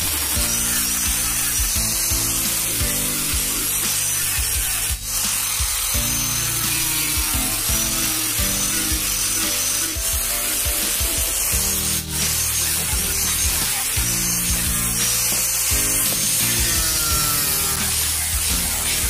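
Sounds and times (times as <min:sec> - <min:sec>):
angle grinder sanding wood: 0:00.0 - 0:19.0
background music with a beat: 0:00.0 - 0:19.0.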